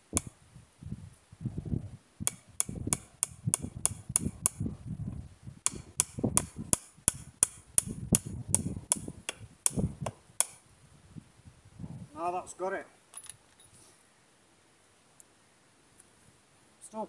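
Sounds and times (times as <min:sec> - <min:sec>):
hammer striking nail: 0:02.3 - 0:04.6, 0:05.6 - 0:10.6.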